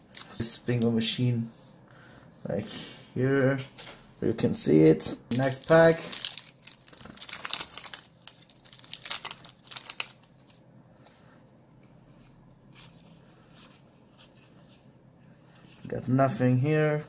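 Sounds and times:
foil pack crinkling and tearing: 0:05.3 - 0:10.6.

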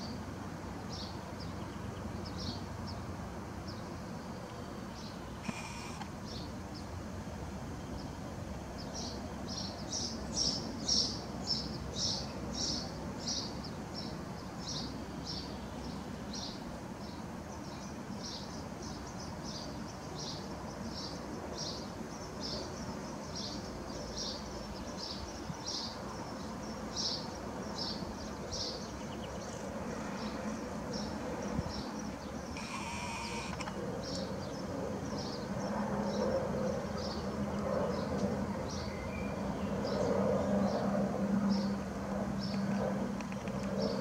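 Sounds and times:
low background noise: 0:00.0 - 0:44.0
sparrow chirping: 0:30.2 - 0:40.8.

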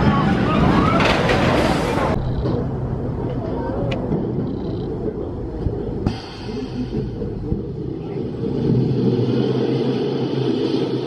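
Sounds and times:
roller coaster train rumbling: 0:00.0 - 0:11.0.

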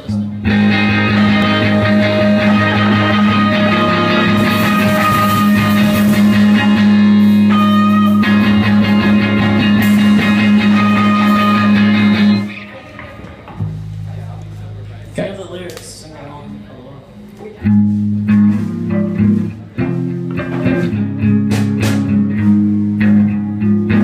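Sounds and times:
rock band playing live: 0:00.0 - 0:14.3, 0:17.6 - 0:24.0
cymbals washing: 0:00.5 - 0:14.6.

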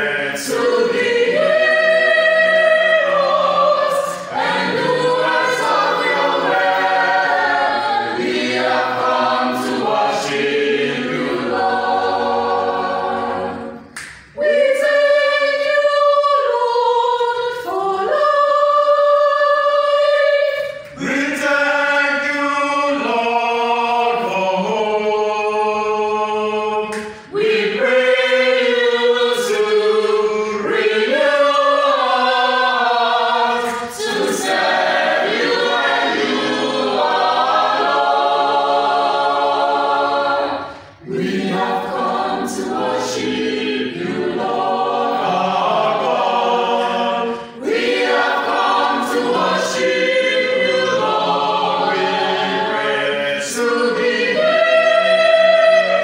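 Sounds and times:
choir singing in harmony: 0:00.0 - 0:56.0
singers breathing: 0:40.6 - 0:41.0.

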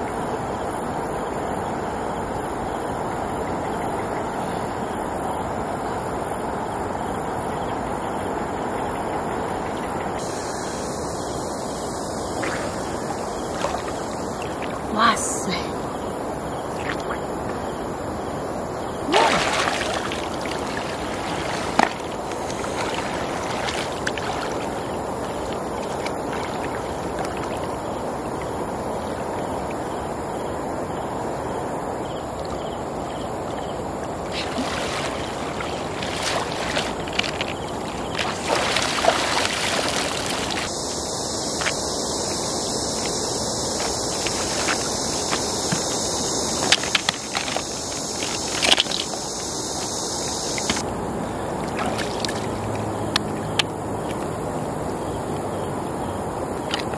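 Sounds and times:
river rushing: 0:09.2 - 0:17.2, 0:18.0 - 0:28.4, 0:33.3 - 0:50.9
splashing in water: 0:12.2 - 0:15.6, 0:19.0 - 0:27.8, 0:34.2 - 0:40.8, 0:43.0 - 0:49.2, 0:51.6 - 0:53.4.

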